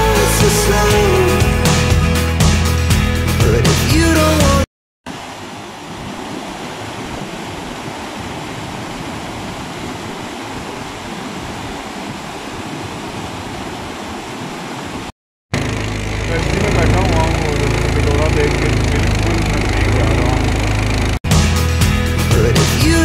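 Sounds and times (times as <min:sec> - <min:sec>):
water rushing over boulders: 0:05.1 - 0:15.1.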